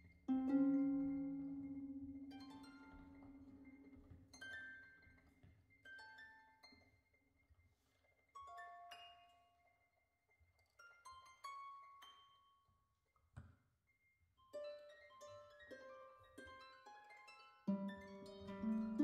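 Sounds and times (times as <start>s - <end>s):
harps plucking notes: 0.3s - 3.9s, 17.7s - 19.0s.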